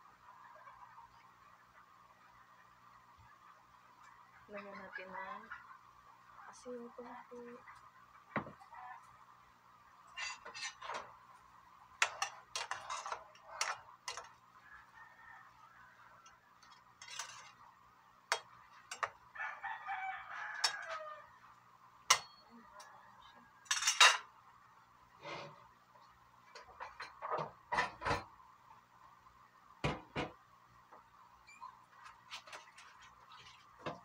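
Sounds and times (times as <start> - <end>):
metal ladle scraping a pan: 10.1 - 11.1, 12.0 - 14.4, 16.6 - 17.7, 25.2 - 25.6
rooster crowing: 14.6 - 16.5, 19.3 - 21.5.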